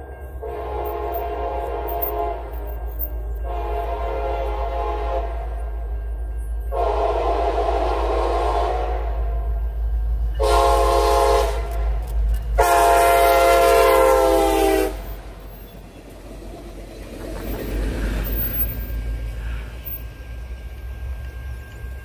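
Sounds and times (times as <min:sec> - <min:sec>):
train wheels rumbling on rails: 0:00.0 - 0:22.0
locomotive air horn blasts: 0:00.4 - 0:05.6, 0:06.7 - 0:09.5, 0:10.4 - 0:12.0, 0:12.6 - 0:15.2.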